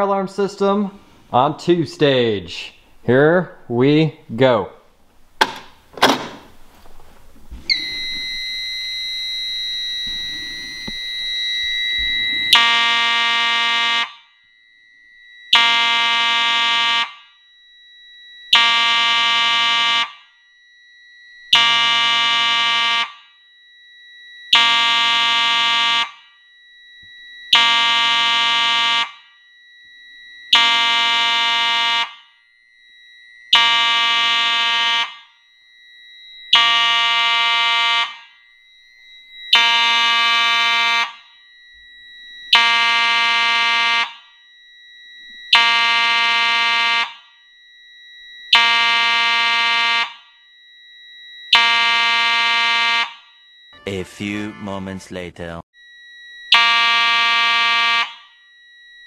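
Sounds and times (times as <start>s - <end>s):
faint steady high tone: 7.6s - 13.5s, 50.2s - 59.0s
fire alarm horn blasts: 7.7s - 59.0s.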